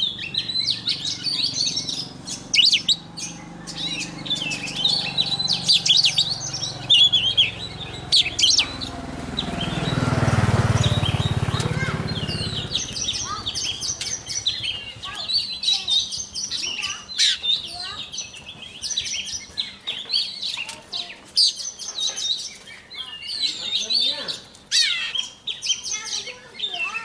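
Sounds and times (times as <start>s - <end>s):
bird singing whistles and chirps: 0.0s - 10.1s, 12.0s - 27.0s
low rumbling noise: 0.0s - 16.0s.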